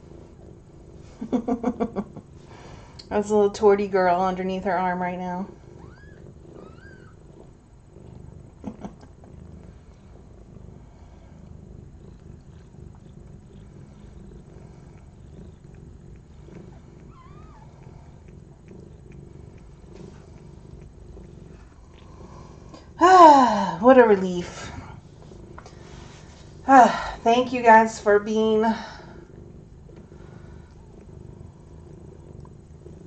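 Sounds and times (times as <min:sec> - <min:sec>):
cat purring: 0:00.0 - 0:33.0.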